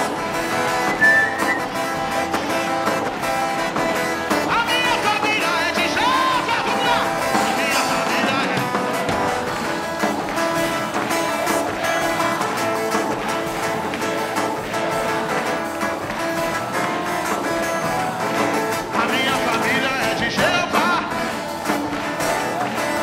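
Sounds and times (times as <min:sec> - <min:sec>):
strummed guitar: 0:00.0 - 0:23.0
person singing: 0:04.3 - 0:09.2, 0:17.9 - 0:21.6.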